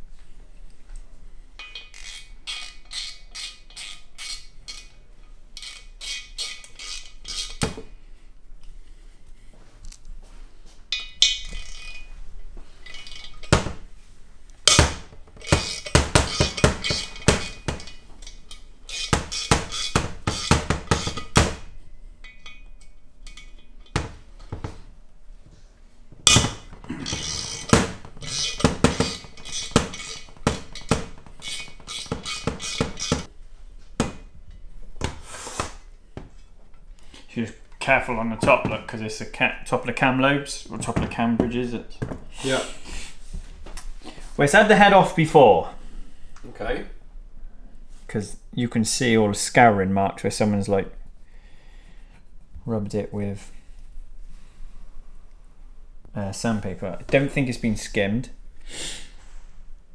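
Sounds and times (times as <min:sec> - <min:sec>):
metal tools clinking on metal: 0:01.6 - 0:05.0, 0:10.9 - 0:12.1, 0:12.8 - 0:13.6, 0:14.7 - 0:21.4, 0:22.2 - 0:24.0, 0:26.2 - 0:33.3.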